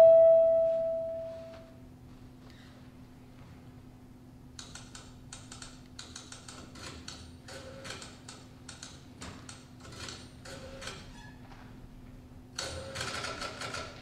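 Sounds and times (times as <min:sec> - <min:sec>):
short pitched tones: 0:00.0 - 0:01.6.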